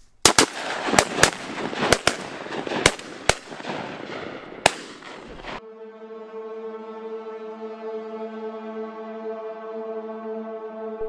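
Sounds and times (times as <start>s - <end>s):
shotgun shots echoing: 0.2s - 5.6s
music: 5.6s - 11.0s.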